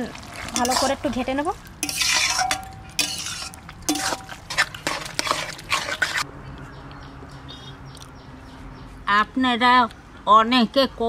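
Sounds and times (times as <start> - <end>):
spatula scraping metal pan: 0.3 - 1.2, 1.8 - 6.3.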